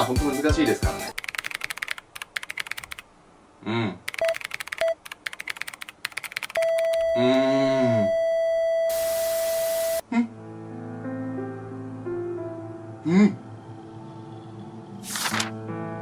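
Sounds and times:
typewriter-style clicks: 0:01.1 - 0:03.0, 0:04.1 - 0:06.9
heart monitor flatline beep: 0:04.2 - 0:05.0, 0:06.6 - 0:10.0
short electronic beeps: 0:06.6 - 0:10.0
wailing voice: 0:07.2 - 0:08.1
hiss of noise: 0:08.9 - 0:10.0.

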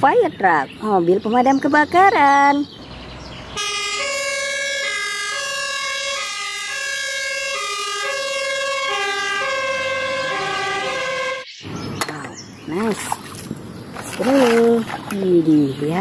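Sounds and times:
two-tone fire engine siren: 0:03.6 - 0:11.5.

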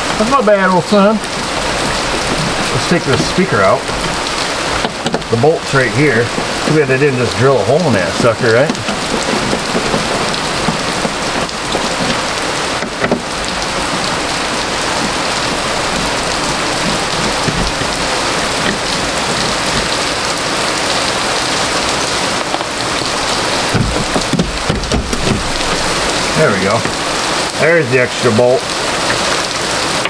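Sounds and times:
heavy rain: 0:00.0 - 0:30.0.

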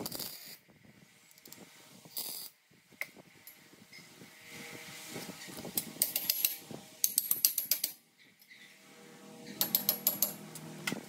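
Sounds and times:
ratchet wrench clicking: 0:05.8 - 0:08.0.

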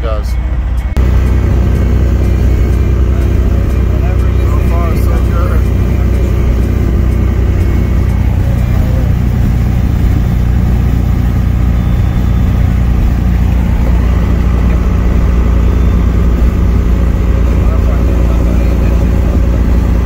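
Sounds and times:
diesel truck engine cruising: 0:00.0 - 0:20.0.

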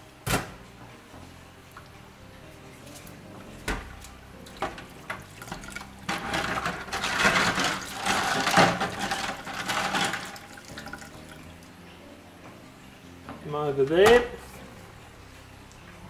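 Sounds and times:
water splashing and sloshing: 0:00.3 - 0:16.0.

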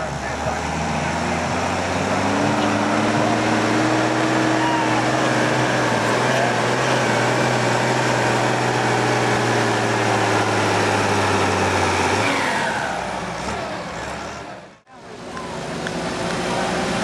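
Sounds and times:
tractor engine at high revs: 0:00.0 - 0:17.0.

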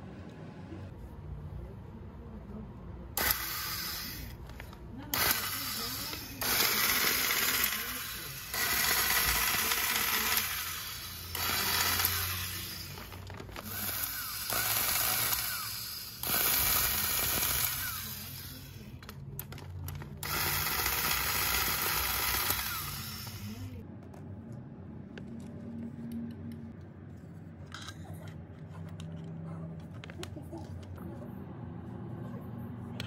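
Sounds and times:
circular saw motor whining: 0:05.2 - 0:18.8, 0:20.2 - 0:23.8
handling sounds: 0:12.8 - 0:14.0.

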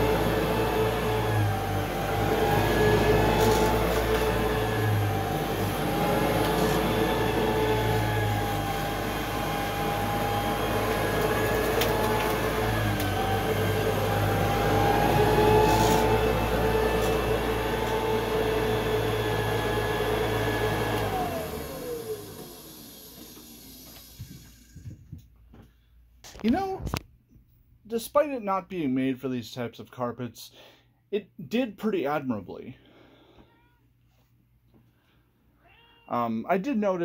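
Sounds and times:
vacuum motor winding down: 0:00.0 - 0:24.9
vacuum cleaner running: 0:00.0 - 0:25.2.

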